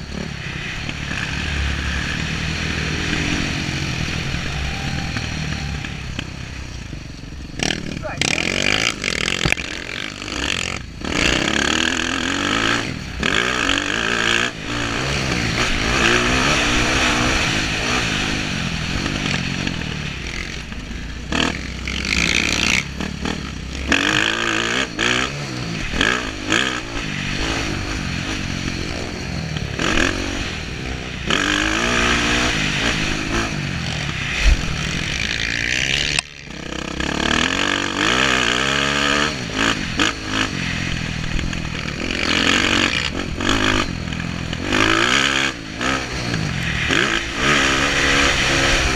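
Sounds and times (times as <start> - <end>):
dirt bike engine revving: 0.0 - 48.9.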